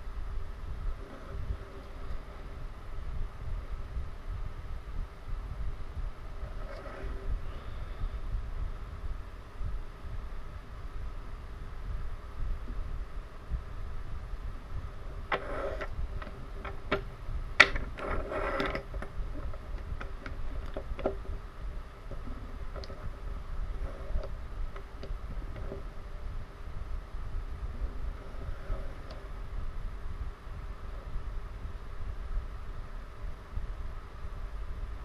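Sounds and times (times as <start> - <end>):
low steady rumble: 0.0 - 35.0
wooden toys clicking and rattling: 15.2 - 21.4, 22.0 - 23.2.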